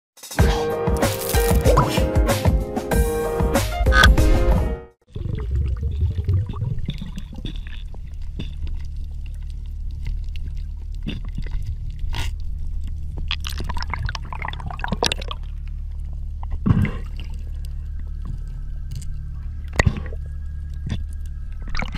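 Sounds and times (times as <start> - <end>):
muffled underwater rumble: 5.1 - 21.9
water gurgling and splashing: 5.1 - 21.9
sharp clicks and crackles: 6.0 - 14.2, 14.9 - 21.9.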